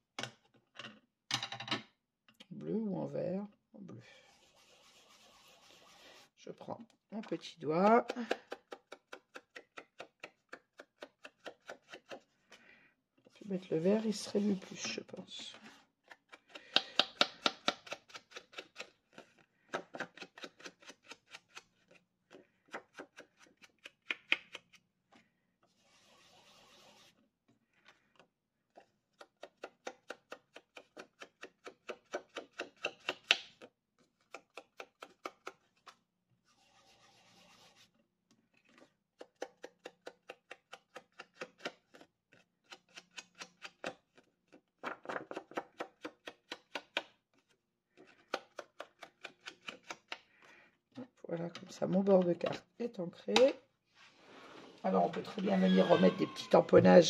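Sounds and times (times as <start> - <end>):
rubbing sounds: 4.2 - 6.4, 13.3 - 15.9, 25.8 - 27.2, 36.4 - 38.0.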